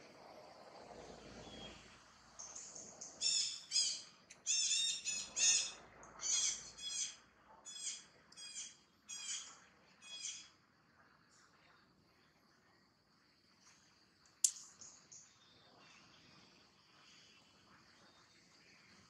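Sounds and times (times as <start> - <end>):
animal high-pitched calls: 3.2 - 10.4.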